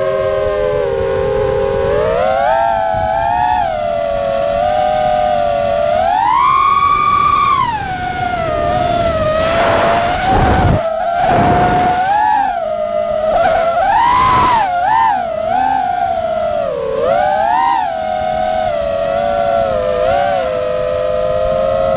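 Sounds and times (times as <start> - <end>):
drone motors whining: 0.0 - 21.9
rush of air: 8.7 - 12.3.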